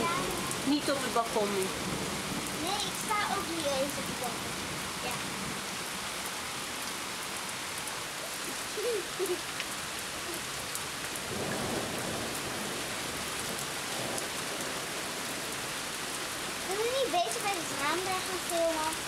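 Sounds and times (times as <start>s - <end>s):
heavy rain pouring: 0.0s - 19.0s.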